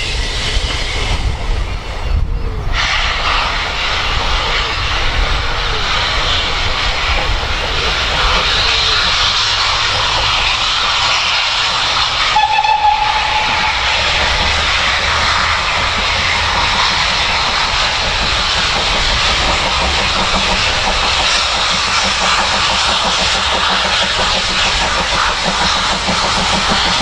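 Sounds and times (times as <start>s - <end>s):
steady rushing noise: 0.0s - 27.0s
steam locomotive whistle: 12.1s - 15.6s.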